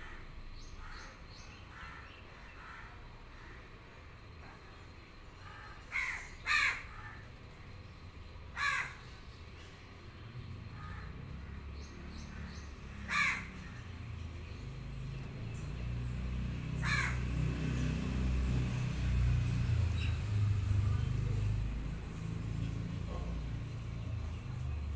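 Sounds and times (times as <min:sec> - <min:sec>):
crow cawing: 0:00.0 - 0:03.7, 0:05.4 - 0:07.3, 0:08.5 - 0:09.2, 0:10.7 - 0:11.6, 0:12.3 - 0:14.0, 0:16.8 - 0:17.3.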